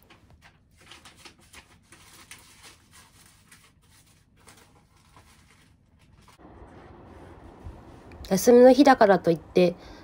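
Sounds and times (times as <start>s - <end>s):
paper and plastic folders rustling: 0.0s - 7.3s.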